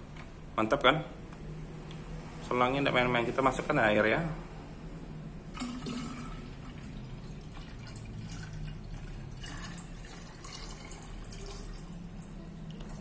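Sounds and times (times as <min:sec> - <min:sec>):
water pouring into plastic tank: 0:05.5 - 0:13.0.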